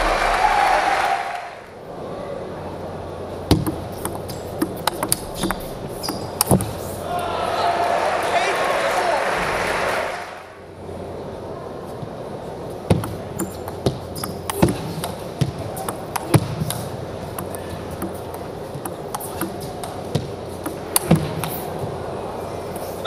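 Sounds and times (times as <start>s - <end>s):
table tennis ball hits: 3.5s - 6.8s, 12.9s - 21.6s.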